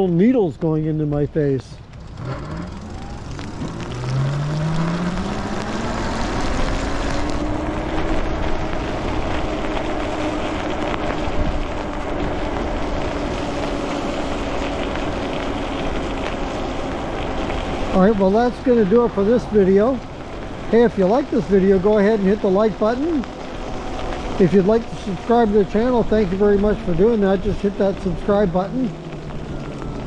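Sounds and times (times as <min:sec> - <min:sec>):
wind and tyres on wet road: 0:00.0 - 0:30.0.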